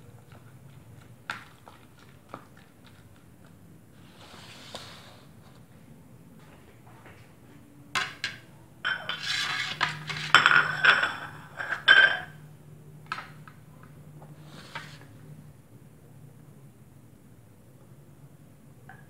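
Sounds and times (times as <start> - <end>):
ceramic plates clinking on tiles: 8.0 - 12.4.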